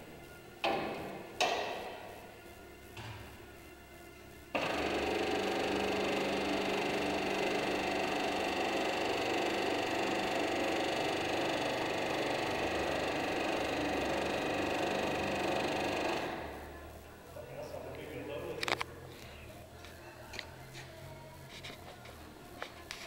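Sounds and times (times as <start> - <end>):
kneading machine humming and whining: 4.5 - 16.9.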